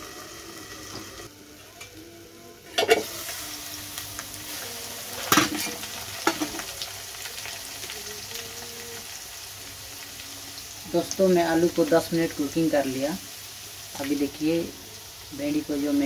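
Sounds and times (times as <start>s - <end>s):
potatoes sizzling in hot oil: 0.0s - 1.3s, 3.0s - 16.0s
metal lid clanking: 2.7s - 3.1s.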